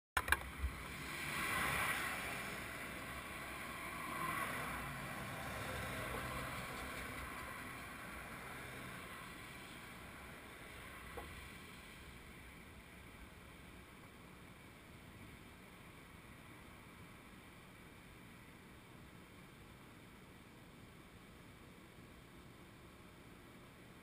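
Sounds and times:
highway traffic passing: 0.2 - 18.8.

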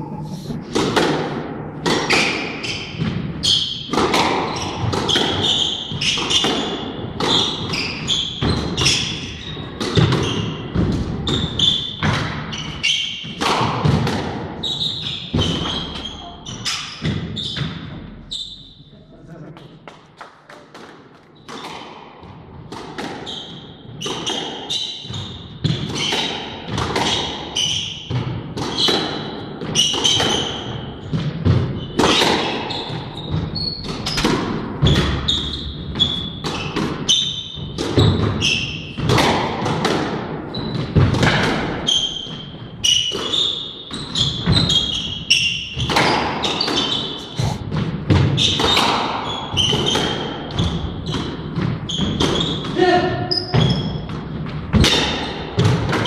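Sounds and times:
shoes squeaking on wooden floor: 4.4 - 11.9, 14.6 - 18.8, 41.9 - 47.8.

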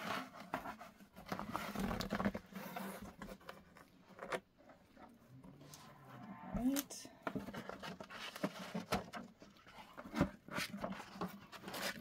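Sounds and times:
cardboard box rustling and scraping: 0.0 - 3.9, 7.3 - 12.0.

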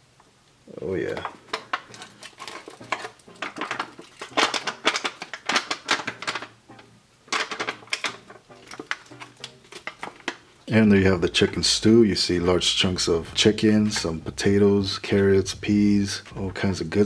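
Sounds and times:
foil pouch crinkling: 1.2 - 6.6, 7.3 - 11.6.

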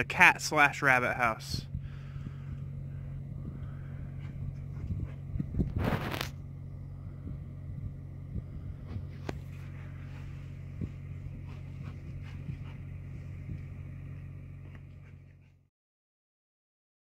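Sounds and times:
generator engine running: 0.0 - 15.7
brief scrape: 5.7 - 6.4.

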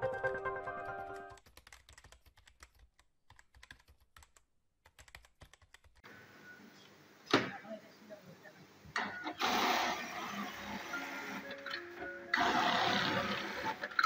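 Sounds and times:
keyboard typing clicks: 0.8 - 6.0.

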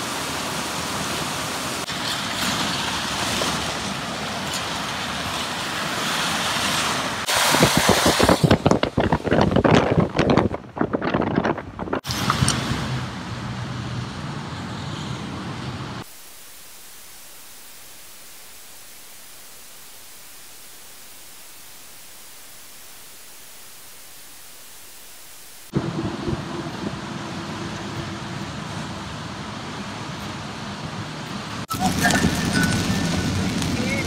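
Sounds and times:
tyres hissing on wet road: 0.0 - 9.0, 12.0 - 34.0
even featureless hiss: 16.0 - 25.7
engine hum: 25.7 - 34.0.

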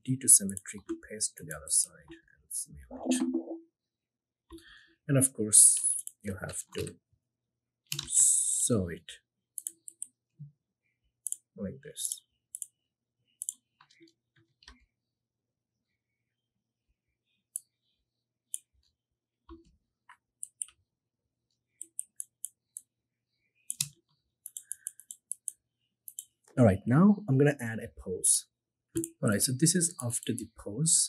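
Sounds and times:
computer mouse and keyboard clicks: 5.7 - 6.9, 7.9 - 8.2, 9.6 - 10.2, 19.5 - 20.8, 21.8 - 22.9, 23.7 - 26.4.

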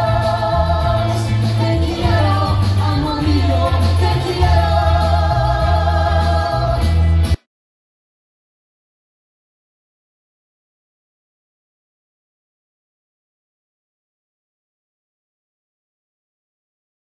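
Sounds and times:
male and female singers: 0.0 - 7.1
live pop band playing: 0.0 - 7.4.

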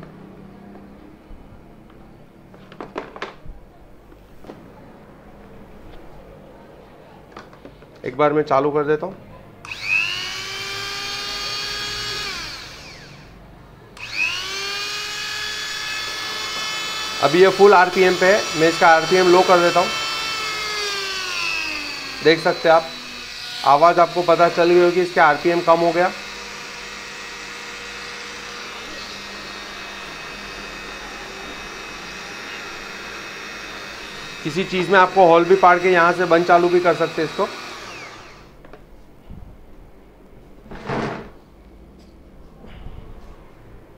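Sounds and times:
rotary tool whining: 9.6 - 13.4, 14.0 - 38.6.

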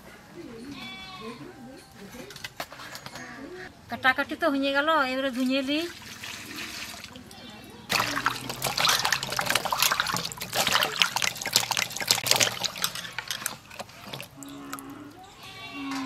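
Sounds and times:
water splashing in a bowl: 5.3 - 14.9.

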